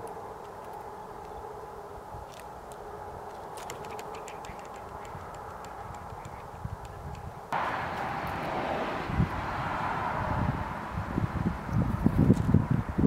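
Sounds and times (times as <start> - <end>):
wind noise: 0.0 - 13.0.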